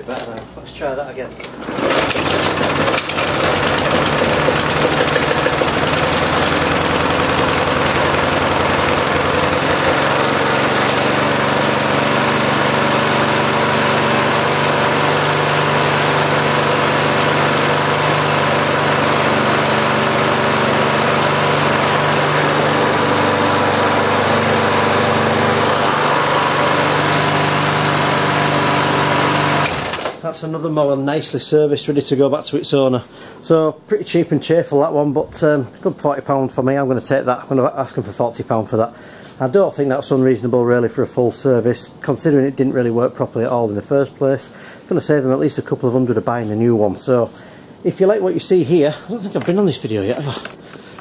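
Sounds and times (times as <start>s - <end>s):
lawnmower engine running: 1.6s - 30.2s.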